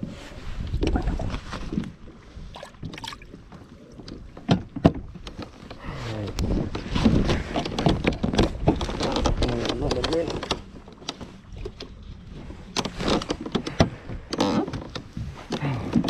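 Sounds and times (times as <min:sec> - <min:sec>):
clatter and rustling: 0:03.4 - 0:16.0.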